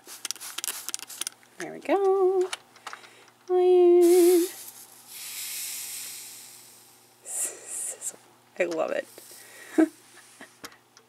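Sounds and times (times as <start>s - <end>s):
person humming: 3.6s - 4.6s
hot iron sizzling on wet fabric: 4.0s - 7.0s.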